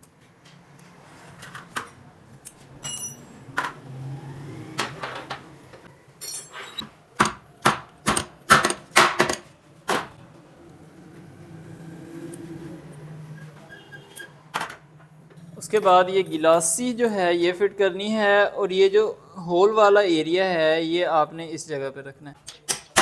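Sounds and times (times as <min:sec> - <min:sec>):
metal-on-metal knocks and clinks: 0:02.8 - 0:03.7.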